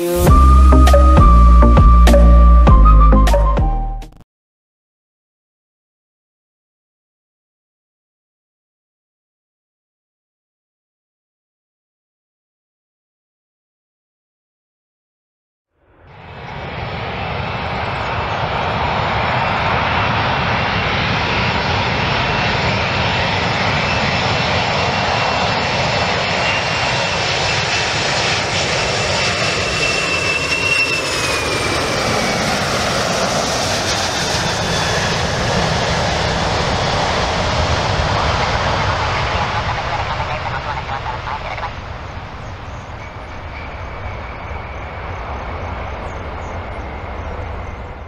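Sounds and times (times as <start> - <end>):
jet airliner engines roaring: 0.0 - 2.7, 15.9 - 48.0.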